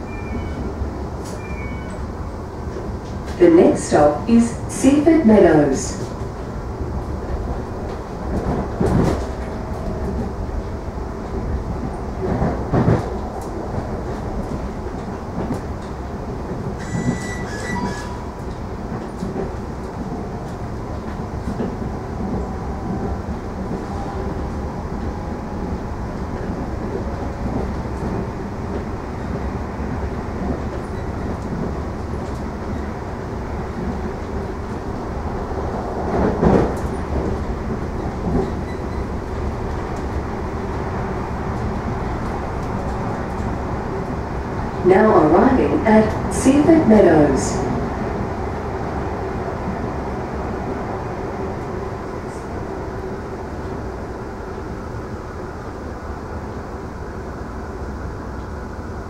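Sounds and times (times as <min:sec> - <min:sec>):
train wheels rumbling on rail: 0:00.0 - 0:59.0
brief high squeal: 0:01.4 - 0:02.0, 0:16.8 - 0:18.3.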